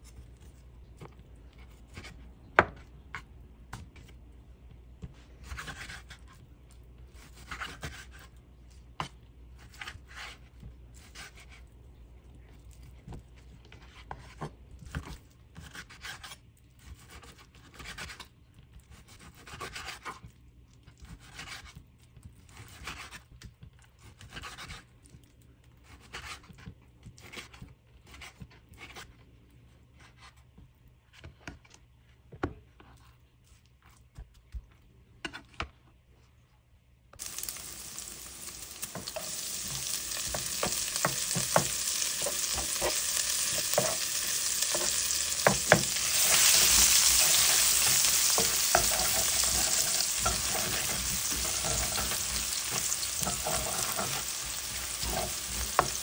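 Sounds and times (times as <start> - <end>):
meat sizzling in frying pan: 37.2 - 56.0
wooden spatula scraping pan: 37.2 - 56.0
knife cutting on wooden board: 38.0 - 56.0.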